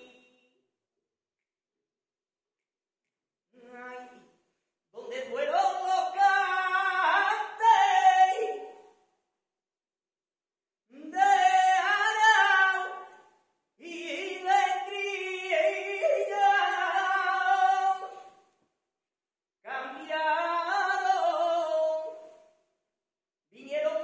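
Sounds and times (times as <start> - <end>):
man singing unaccompanied: 5.0 - 8.7, 13.8 - 18.2.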